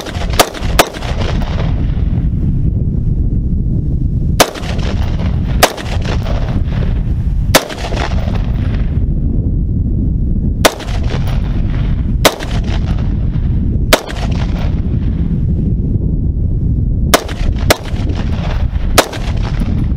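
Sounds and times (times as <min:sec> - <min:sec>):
rifle shots with echo: 0:00.0 - 0:01.8, 0:04.4 - 0:06.8, 0:07.5 - 0:08.9, 0:10.6 - 0:13.1, 0:13.9 - 0:14.8, 0:17.1 - 0:19.8
low rumble: 0:00.0 - 0:19.9.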